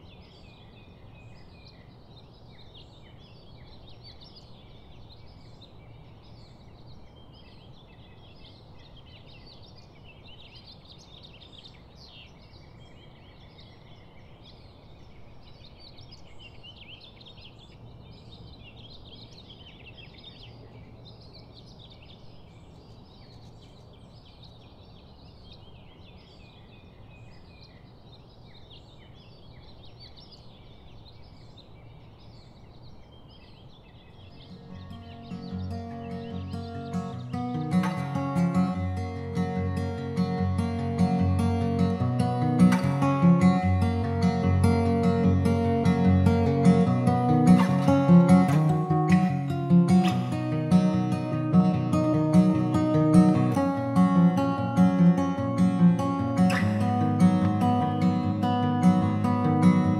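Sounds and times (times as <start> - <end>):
chorus of high chirps: 34.3 - 59.9.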